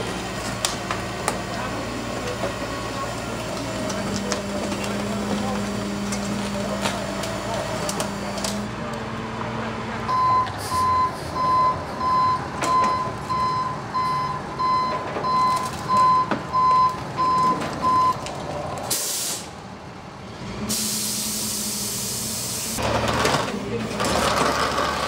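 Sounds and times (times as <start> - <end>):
truck engine running: 0.0 - 25.0
truck back-up alarm beeping: 10.1 - 18.2
air hiss: 18.9 - 19.5, 20.7 - 22.8.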